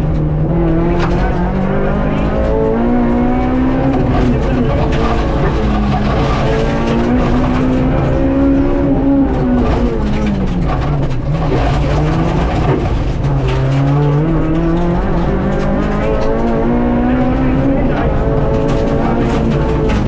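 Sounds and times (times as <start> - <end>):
car engine revving through gears: 0.0 - 20.0.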